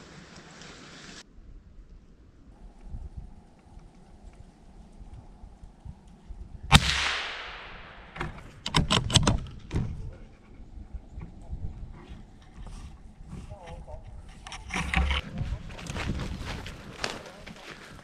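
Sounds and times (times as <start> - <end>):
gunshot with echo: 6.7 - 8.3
sharp knocks and rattles: 14.3 - 15.2.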